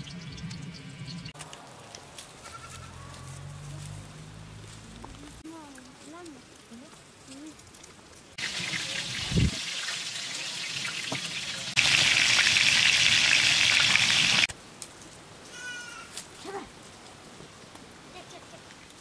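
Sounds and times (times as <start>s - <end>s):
fish sizzling in hot oil: 8.4s - 14.5s.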